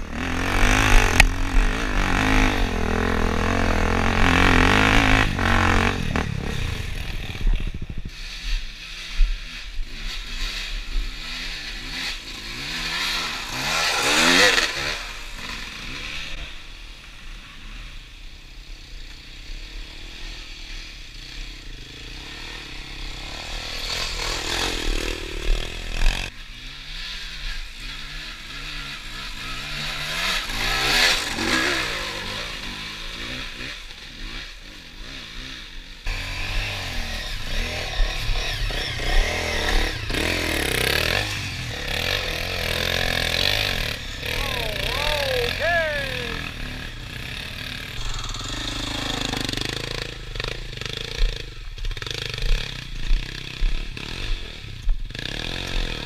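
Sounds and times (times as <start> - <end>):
dirt bike engines revving: 0.0 - 56.0.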